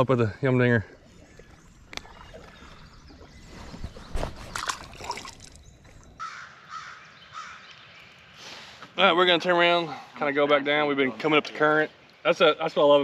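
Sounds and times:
bird calling: 0.9s - 8.8s.

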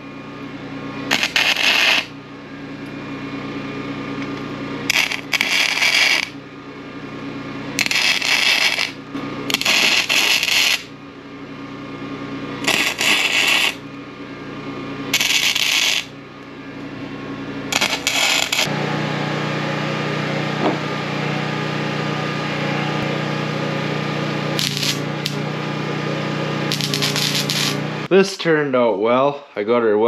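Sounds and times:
low machine hum: 0.0s - 30.0s
arc welding sputtering: 1.0s - 2.2s, 4.2s - 6.4s, 7.7s - 10.9s, 12.6s - 13.9s, 15.1s - 16.1s, 17.7s - 18.8s, 23.0s - 28.2s.

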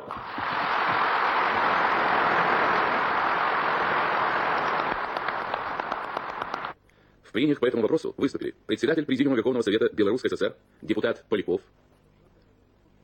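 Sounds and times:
audience applauding in unison: 0.0s - 6.8s.

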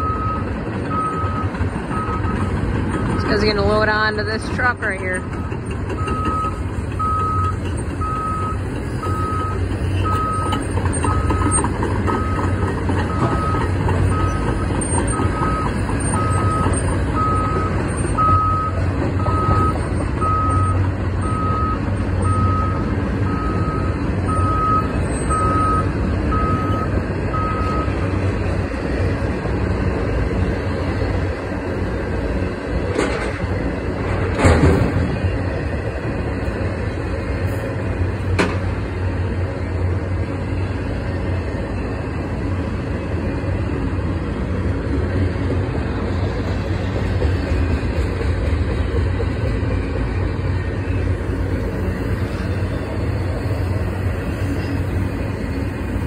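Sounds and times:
excavator travel alarm beeping: 0.0s - 28.1s
diesel engine rumble: 0.0s - 56.0s
freight train passing: 0.0s - 56.0s.

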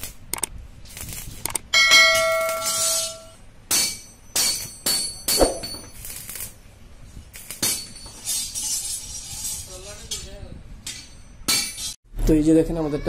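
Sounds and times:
arc welder crackling hiss: 0.0s - 1.6s, 5.9s - 10.2s.

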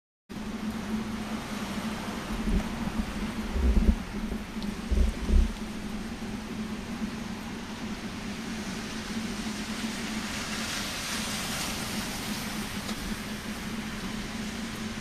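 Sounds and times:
rain: 0.3s - 15.0s
steady low hum: 0.3s - 15.0s
tyres hissing on wet road: 7.8s - 15.0s.

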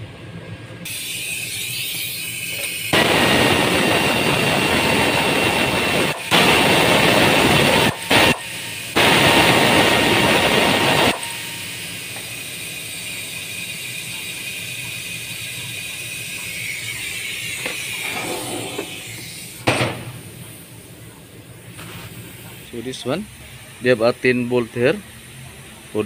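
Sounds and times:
air ratchet running: 0.8s - 21.0s.

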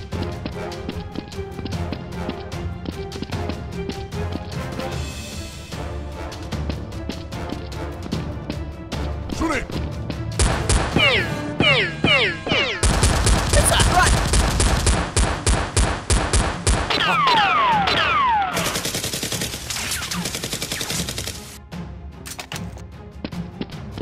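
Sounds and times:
automatic gunfire: 12.8s - 21.6s.

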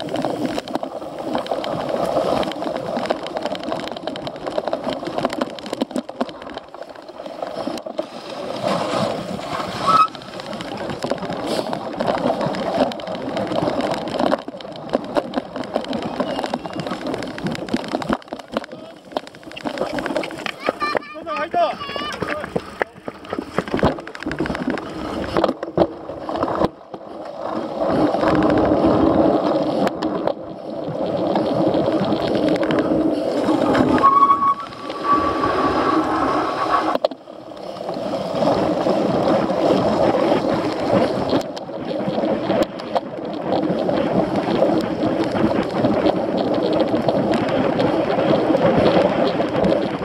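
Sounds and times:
bike tyres rolling and rattling: 0.0s - 50.0s.

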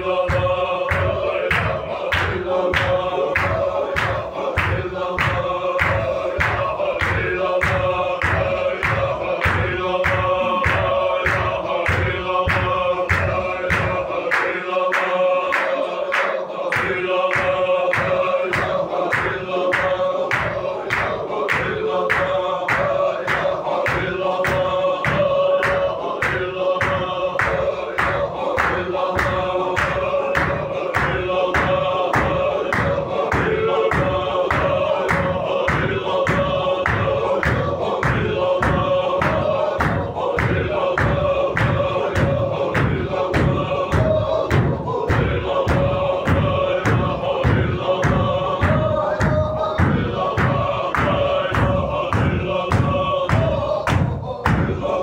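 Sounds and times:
men chanting together: 0.0s - 55.0s
sharp rhythmic beats: 0.0s - 55.0s
deep thuds: 24.0s - 55.0s.

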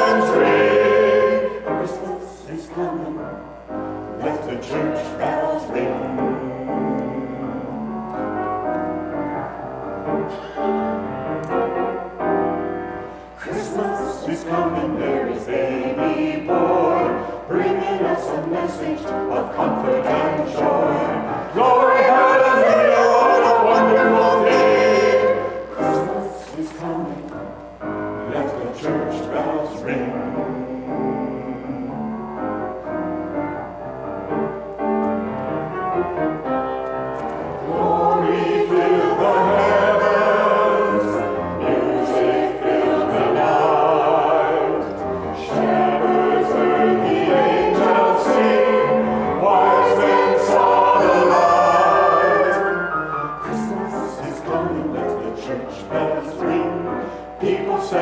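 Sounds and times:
mixed choir singing: 0.0s - 32.7s, 37.1s - 58.0s.

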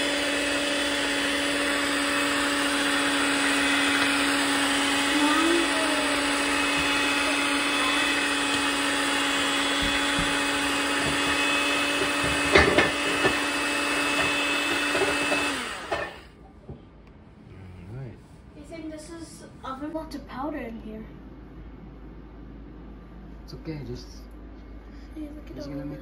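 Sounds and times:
electric hand mixer whirring: 0.0s - 16.4s
sharp knocks: 9.6s - 13.4s.

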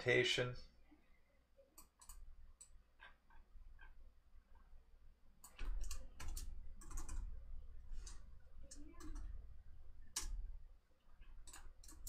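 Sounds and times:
keyboard keys clicking: 5.4s - 7.3s, 11.2s - 12.0s.

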